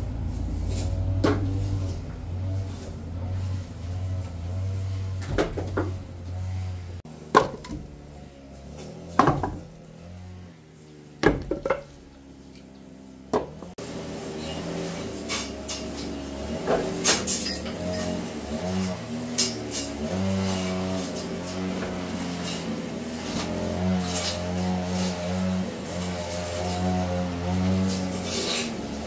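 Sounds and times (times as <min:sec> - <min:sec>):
hard objects knocking and clattering: 0:09.2 - 0:09.8, 0:11.2 - 0:12.0.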